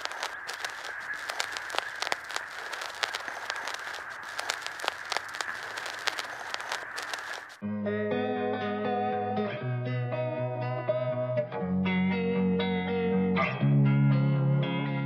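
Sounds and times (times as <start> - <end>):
dry fish crackling while eaten: 0.0 - 7.6
steady hiss: 0.0 - 7.6.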